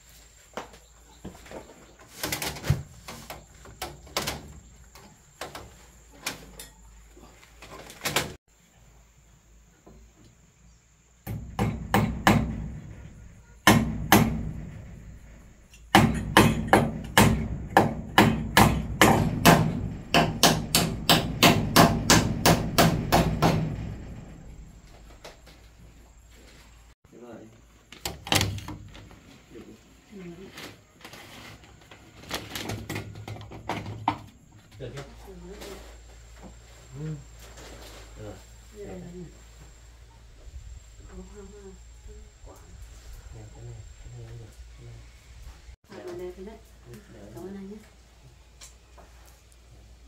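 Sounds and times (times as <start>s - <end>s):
hammer blows: 15.9s - 24.8s.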